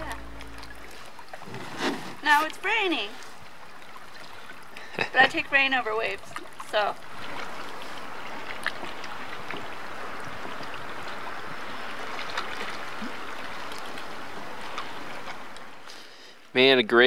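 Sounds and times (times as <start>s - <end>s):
rain hissing on a lake: 0.0s - 17.0s
faint ticks of raindrops: 13.5s - 16.0s.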